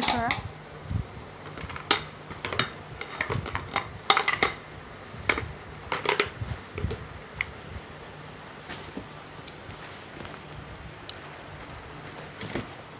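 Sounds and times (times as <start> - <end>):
handling rustles: 8.6 - 12.9.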